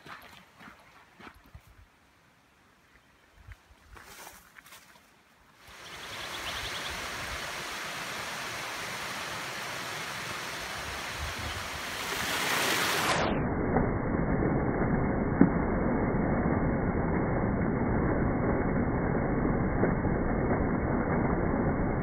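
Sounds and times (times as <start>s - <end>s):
creek water rushing over rocks: 5.6s - 13.2s.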